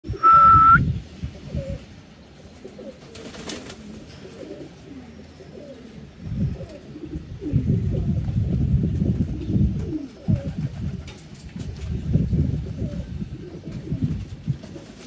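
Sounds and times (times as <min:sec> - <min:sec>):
pigeons cooing: 0:00.1 - 0:15.0
short high beep: 0:00.2 - 0:00.8.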